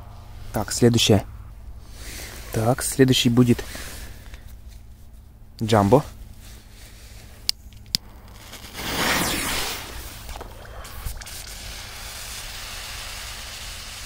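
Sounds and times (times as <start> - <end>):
firecracker fuse hissing: 8.0 - 14.0.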